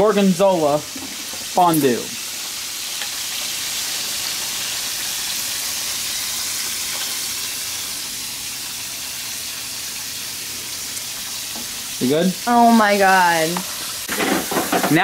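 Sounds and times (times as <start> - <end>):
chicken frying in hot oil: 0.0 - 15.0.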